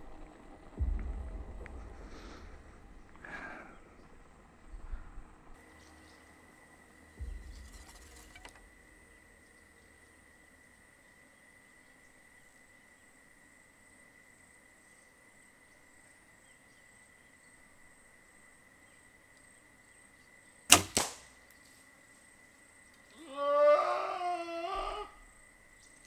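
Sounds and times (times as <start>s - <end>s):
bow release crack: 7.2s - 9.1s, 20.7s - 21.7s
arrow striking goat: 20.7s - 21.3s.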